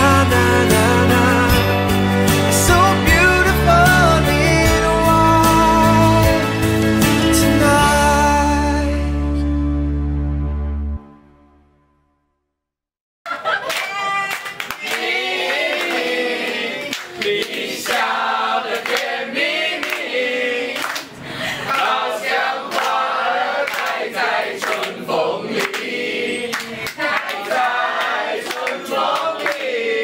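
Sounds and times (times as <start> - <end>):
hand claps: 13.6 - 22.0, 22.6 - 29.8
group singing in chorus: 14.8 - 30.0.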